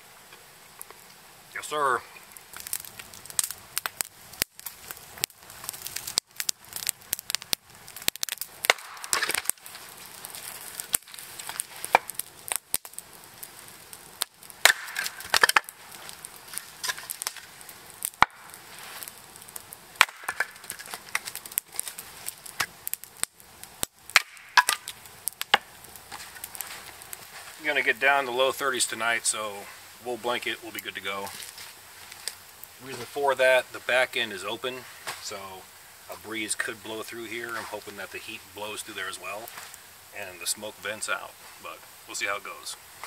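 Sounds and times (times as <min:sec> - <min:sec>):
hatchet chopping wood: 0:14.6 - 0:15.7, 0:20.0 - 0:21.2, 0:24.1 - 0:24.9.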